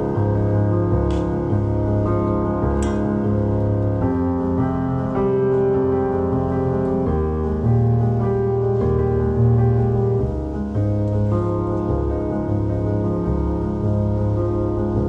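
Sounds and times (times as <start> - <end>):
soft keyboard chords: 0.0 - 15.0.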